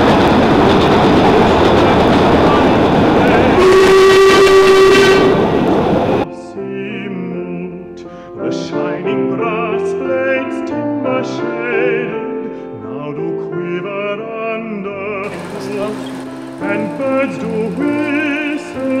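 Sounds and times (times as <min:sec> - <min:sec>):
steam train running: 0:00.0 - 0:06.2, 0:15.2 - 0:19.0
steam train whistle: 0:03.3 - 0:06.2
operatic singing with accompaniment: 0:13.1 - 0:19.0.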